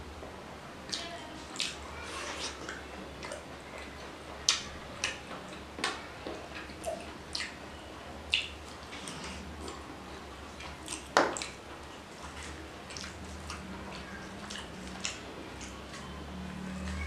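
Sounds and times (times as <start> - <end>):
mouth smacking while chewing: 0.9 - 5.6, 6.4 - 7.7, 8.3 - 9.9, 10.5 - 16.1.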